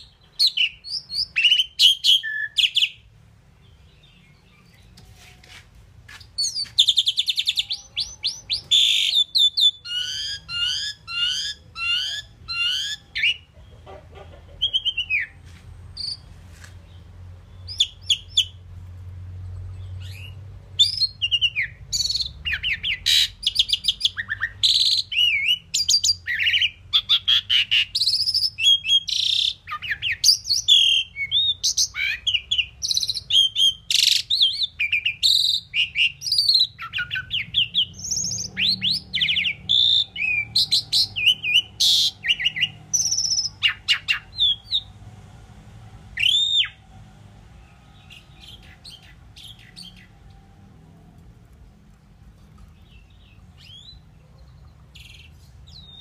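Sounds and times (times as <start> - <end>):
bird singing whistles and chirps: 0.0 - 3.0, 6.4 - 13.5, 17.6 - 18.6, 19.8 - 44.9, 46.2 - 46.8, 52.9 - 54.0, 55.0 - 56.0.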